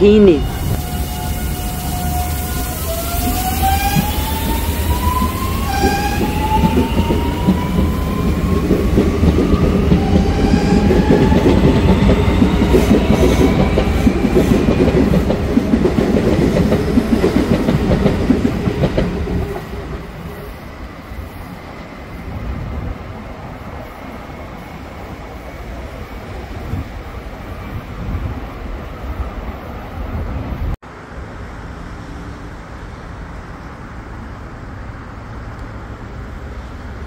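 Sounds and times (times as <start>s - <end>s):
train wheels clacking on rails: 3.2s - 20.5s.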